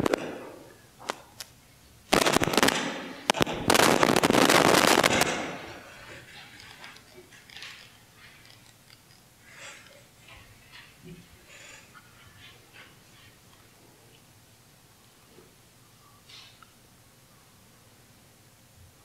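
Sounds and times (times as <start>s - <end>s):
microphone handling crackle: 2.1s - 5.6s.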